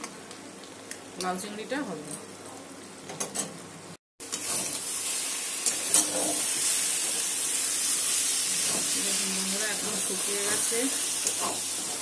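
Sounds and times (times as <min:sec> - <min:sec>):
curry sizzling in a pan: 0:04.2 - 0:12.0
spatula scraping a pan: 0:05.6 - 0:06.7.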